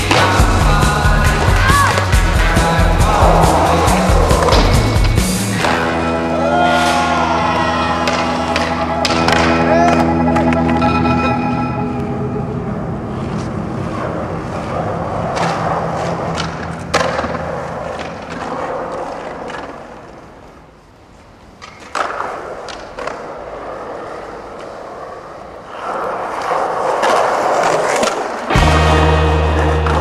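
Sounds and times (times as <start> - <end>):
skateboard wheels rolling on concrete: 0.0 - 30.0
skateboard clacks: 7.5 - 10.9, 14.6 - 20.6, 21.5 - 28.6.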